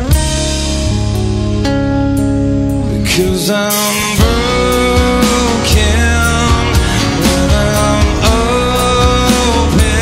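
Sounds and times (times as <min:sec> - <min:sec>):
song with steady beat: 0:00.0 - 0:10.0.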